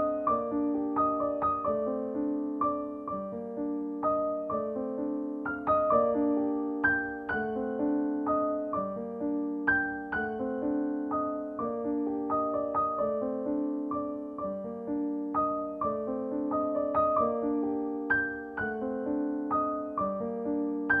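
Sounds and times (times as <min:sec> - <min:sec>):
gentle piano melody: 0:00.0 - 0:21.0.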